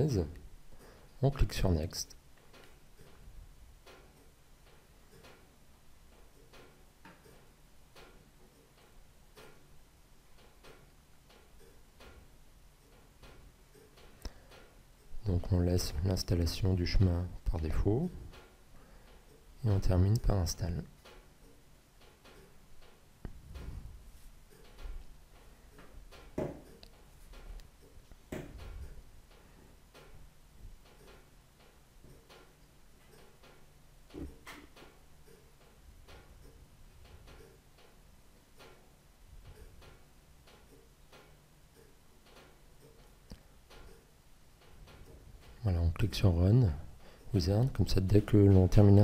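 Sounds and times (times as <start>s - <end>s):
light ticks and clicks: 0.2s - 49.0s
soft knocks: 25.8s - 26.8s, 28.3s - 28.9s.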